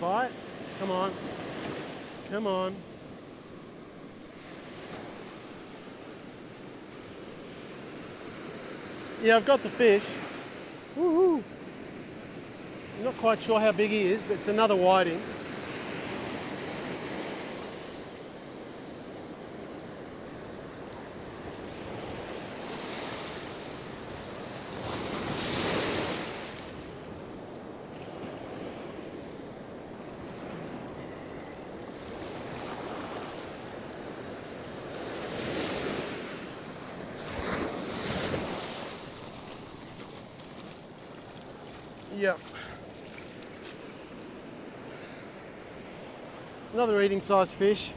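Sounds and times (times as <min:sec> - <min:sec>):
surf breaking on beach: 0:32.0 - 0:45.5.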